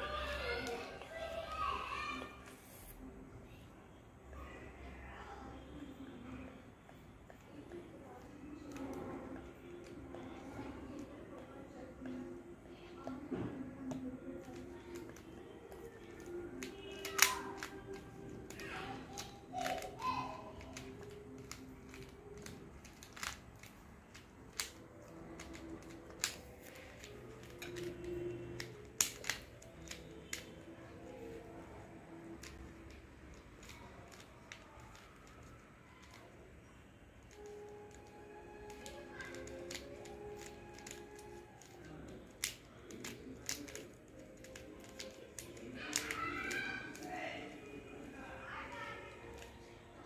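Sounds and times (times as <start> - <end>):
puzzle cube plastic clicks: 14.0 - 31.2, 32.3 - 36.4, 37.3 - 47.1.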